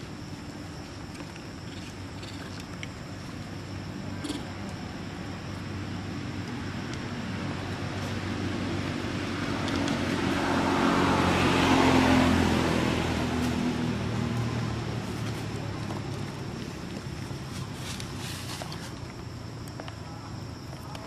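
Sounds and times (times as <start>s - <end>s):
vehicle passing by: 8.2s - 15.6s.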